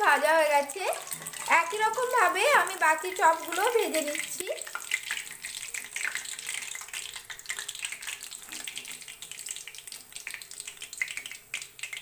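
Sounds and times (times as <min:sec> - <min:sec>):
food deep-frying in oil: 0:00.0 - 0:12.0.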